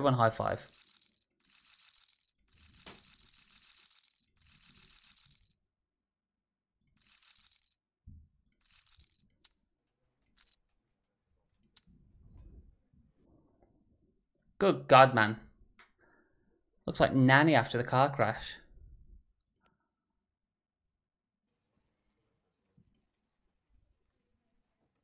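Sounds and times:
casino chips clinking: 0.6s - 5.5s.

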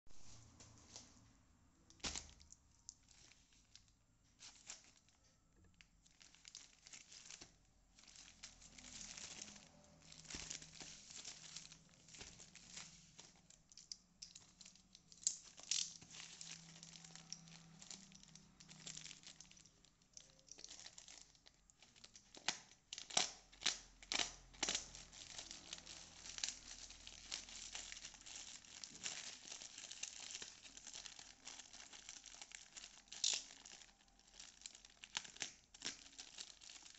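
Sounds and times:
plastic mailer bag crinkling: 1.9s - 36.9s
plastic snapping and tearing: 8.8s - 36.9s.

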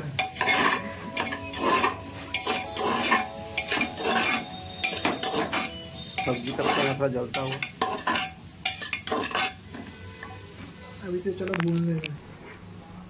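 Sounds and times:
light sizzle: 0.0s - 12.8s
metal spoon scraping pot: 0.2s - 9.9s.

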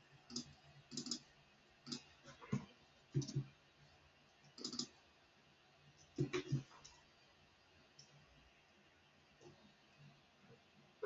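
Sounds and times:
keyboard and mouse clicking: 0.3s - 1.2s, 3.2s - 3.4s, 4.5s - 4.9s.

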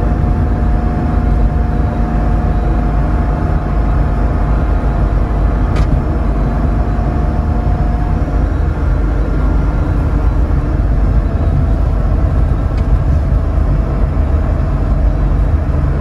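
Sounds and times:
car engine and road rumble: 0.0s - 16.0s
steady whine: 0.0s - 16.0s.

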